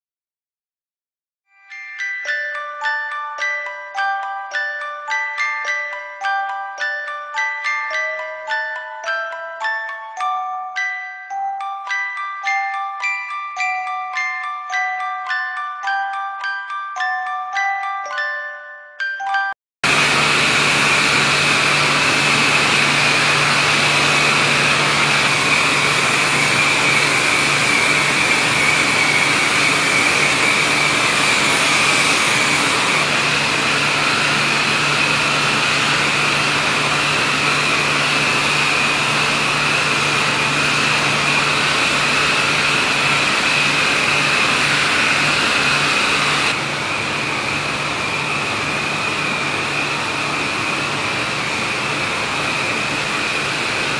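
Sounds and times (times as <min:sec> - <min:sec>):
machine motor whirring and whining: 0:19.9 - 0:53.9.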